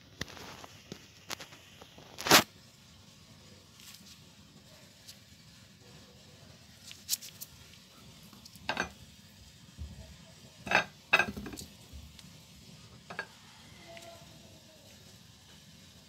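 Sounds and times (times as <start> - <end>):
glass clinking on ceramic plate: 8.7 - 9.0, 10.7 - 11.6, 13.1 - 13.3.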